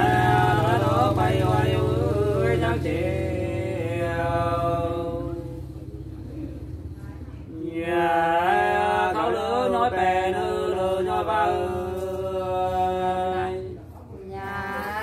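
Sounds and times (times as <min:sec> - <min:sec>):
person singing unaccompanied: 0:14.2 - 0:15.0.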